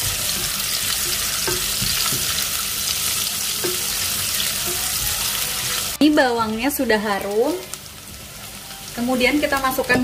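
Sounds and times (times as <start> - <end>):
spatula scraping and tapping pot: 0.0 - 2.4
shallots sizzling in hot oil: 0.0 - 10.0.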